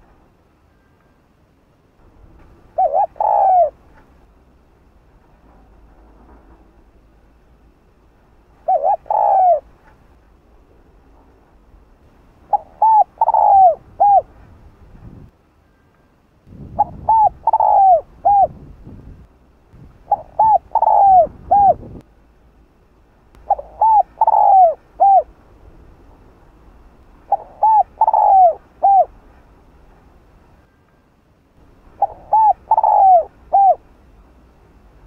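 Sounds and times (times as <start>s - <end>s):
dove cooing: 2.7s - 4.1s, 8.6s - 9.8s, 12.5s - 14.3s, 16.8s - 18.7s, 20.0s - 22.0s, 23.4s - 25.3s, 27.2s - 29.2s, 31.9s - 33.9s.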